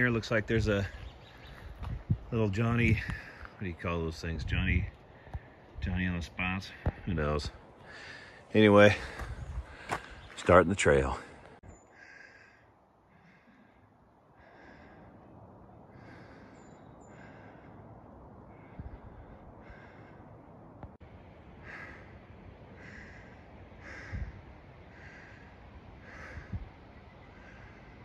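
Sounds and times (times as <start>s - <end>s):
person breathing: 3.0s - 3.6s, 5.0s - 5.8s, 7.6s - 10.3s, 11.2s - 20.7s, 21.6s - 28.0s.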